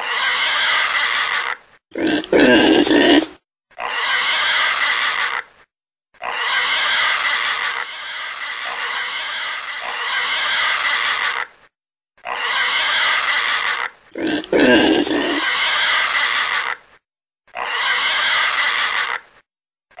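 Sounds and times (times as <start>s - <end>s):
pig grunting: 1.9s - 3.4s, 14.2s - 15.5s.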